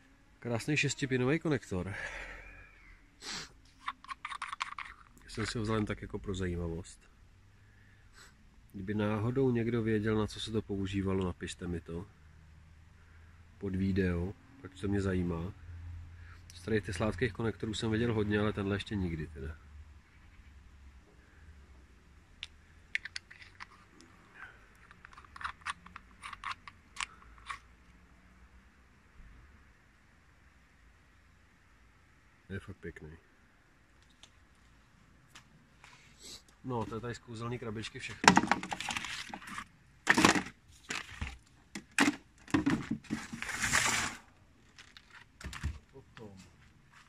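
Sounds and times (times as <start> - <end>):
plastic connector clicks and scrapes: 3.7 - 6.0, 22.4 - 24.1, 24.7 - 27.7, 38.2 - 44.0
plastic crate knocks and rustles: 38.2 - 39.0, 41.2 - 43.6
crate scraping across table: 42.6 - 44.3.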